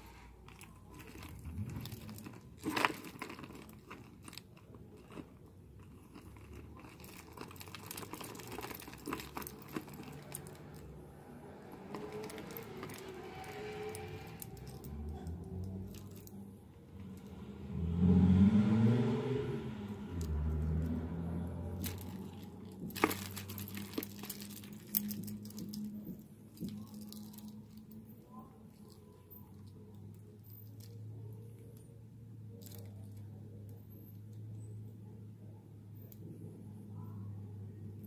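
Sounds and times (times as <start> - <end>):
metal charms and chains jangling: 6.2 - 10.9, 11.8 - 16.4, 21.7 - 31.1.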